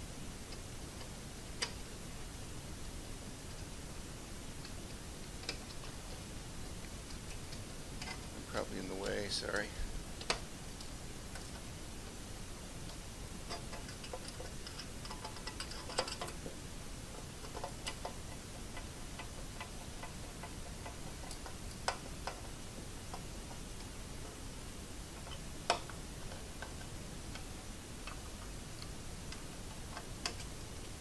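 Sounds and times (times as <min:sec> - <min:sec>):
screwdriver clicking on metal frame: 0:13.5 - 0:16.4.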